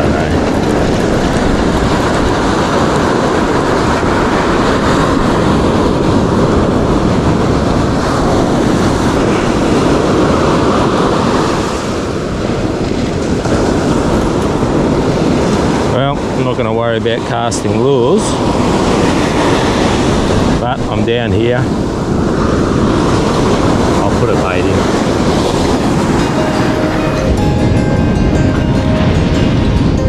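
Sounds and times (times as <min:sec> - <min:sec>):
ocean surf breaking on beach: 0:00.0 - 0:30.0.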